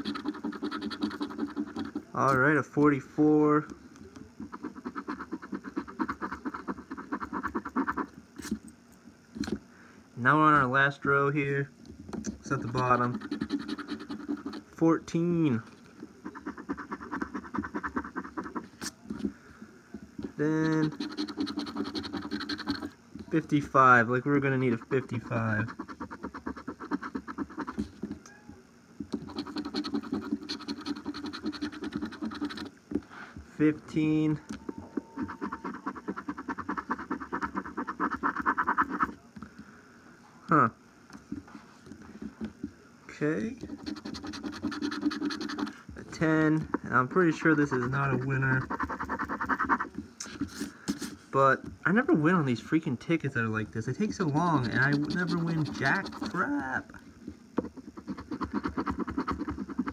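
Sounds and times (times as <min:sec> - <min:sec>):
coin scratching lottery ticket: 0:00.0 - 0:02.6, 0:04.4 - 0:08.6, 0:12.4 - 0:14.8, 0:15.5 - 0:19.0, 0:20.2 - 0:28.1, 0:29.1 - 0:32.7, 0:33.7 - 0:39.2, 0:43.6 - 0:51.2, 0:54.0 - 0:56.8, 0:57.6 - 0:59.9
coin scraping lottery ticket: 0:12.5 - 0:14.6, 0:20.4 - 0:23.5, 0:29.3 - 0:32.7, 0:54.2 - 0:56.5.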